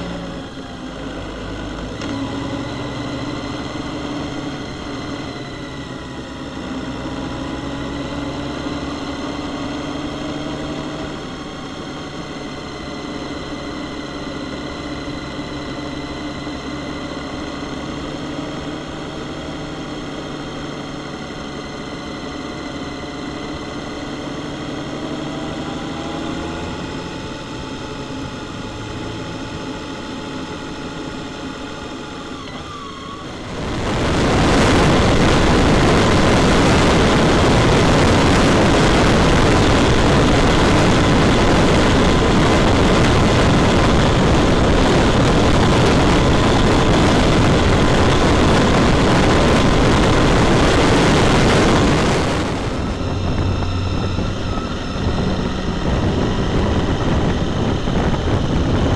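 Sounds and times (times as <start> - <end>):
motorcycle engine running: 0.0 - 58.9
wind and road noise: 0.0 - 58.9.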